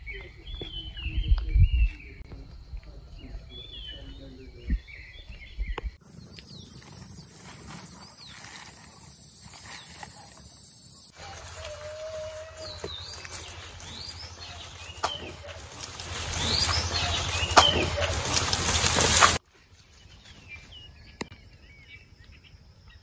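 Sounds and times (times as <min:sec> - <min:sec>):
wind rumble on microphone: 0:00.0 - 0:07.8
birds calling and warbling: 0:00.0 - 0:23.0.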